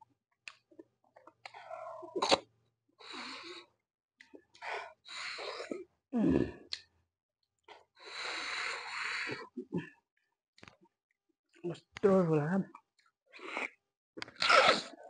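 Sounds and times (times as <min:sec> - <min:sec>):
person slurping marrow from bone: 0:13.4 - 0:15.0.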